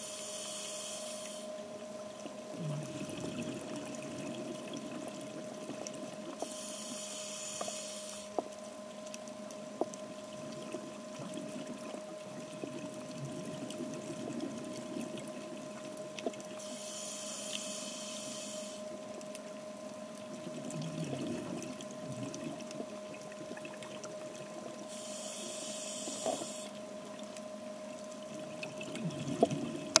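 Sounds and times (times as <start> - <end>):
underwater bubble hiss: 0.0 - 1.6, 2.6 - 8.4, 16.6 - 19.0, 23.5 - 26.8
faint steady hum: 0.0 - 30.0.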